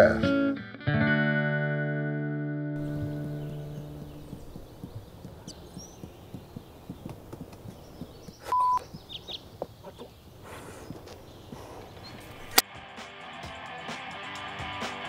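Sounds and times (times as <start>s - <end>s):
juggling balls tapping: 2.8s - 9.0s
birds chirping faintly: 2.8s - 12.6s
short electronic beep: 8.5s - 8.8s.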